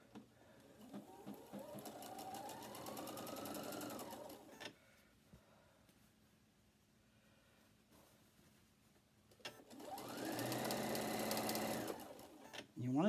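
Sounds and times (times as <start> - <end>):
sewing machine motor whine: 0.8 - 4.6, 9.6 - 12.6.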